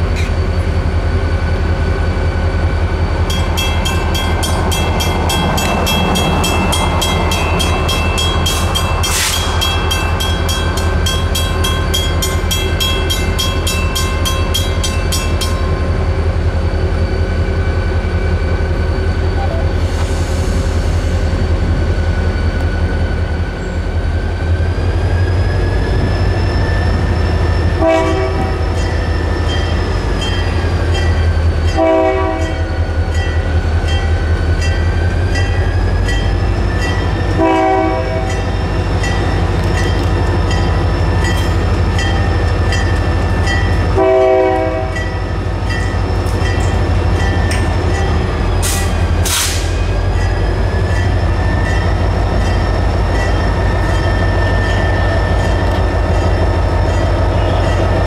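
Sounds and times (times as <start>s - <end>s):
diesel locomotive engine rumble: 0.0s - 58.0s
crossing bell ringing: 3.2s - 16.1s, 27.1s - 49.2s, 49.8s - 58.0s
locomotive horn blasts: 27.8s - 28.6s, 31.7s - 32.6s, 37.3s - 38.4s, 43.9s - 45.1s.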